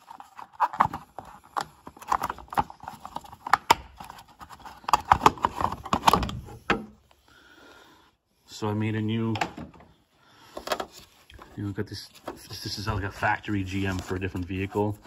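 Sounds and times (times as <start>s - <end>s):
plastic clicks and knocks: 9.3s - 9.9s.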